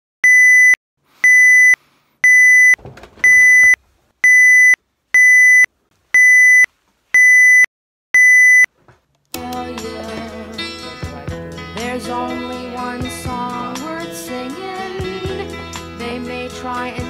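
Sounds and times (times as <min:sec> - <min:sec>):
electronic alarm beeping: 0:00.2 - 0:08.7.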